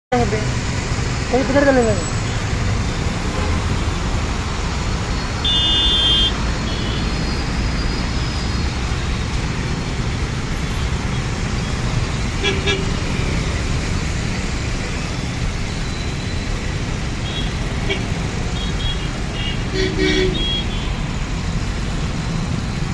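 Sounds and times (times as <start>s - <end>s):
traffic on a wet road: 0.1s - 22.9s
vehicle horn toots: 5.4s - 7.1s.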